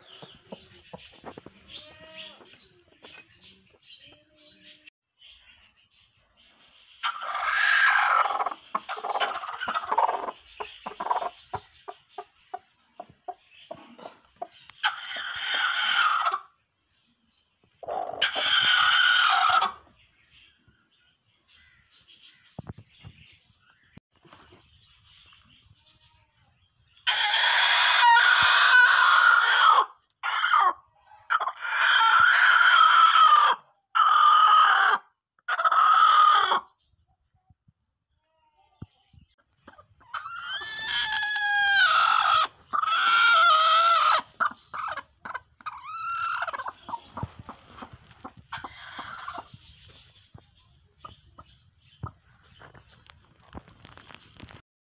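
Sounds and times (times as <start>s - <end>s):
hen clucking: 0.0s - 3.3s, 7.0s - 16.6s, 17.8s - 19.9s, 27.1s - 36.8s, 38.8s - 52.8s
hen shrieking growls: 7.0s - 8.5s, 14.8s - 16.4s, 17.9s - 19.8s, 27.0s - 30.8s, 31.4s - 36.7s, 40.1s - 44.3s
hen squawking: 40.0s - 45.0s.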